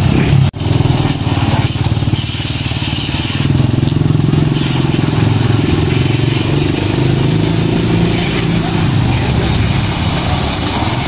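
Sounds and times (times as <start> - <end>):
pressure washer pump humming: 0.0 - 11.0
water jet hissing: 0.0 - 11.0.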